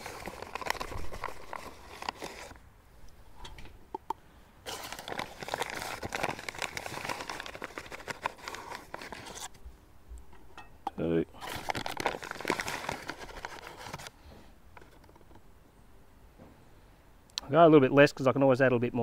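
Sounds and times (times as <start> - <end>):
cup scooping flour: 0.0 - 2.6, 4.7 - 9.5
flour bag crinkling: 0.0 - 2.6, 4.6 - 9.5, 11.4 - 14.2.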